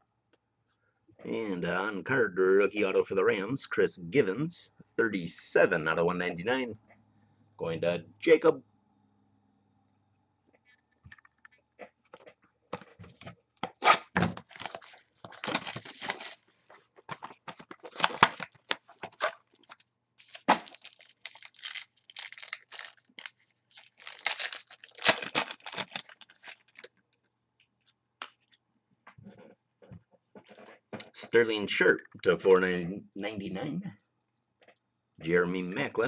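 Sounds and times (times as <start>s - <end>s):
foil wrapper crinkling and tearing: 14.4s - 16.7s, 17.6s - 27.0s.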